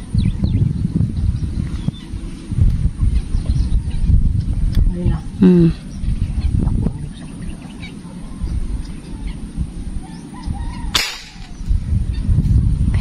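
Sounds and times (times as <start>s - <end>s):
steady low rumble: 0.0s - 13.0s
airgun shot crack: 10.9s - 11.6s.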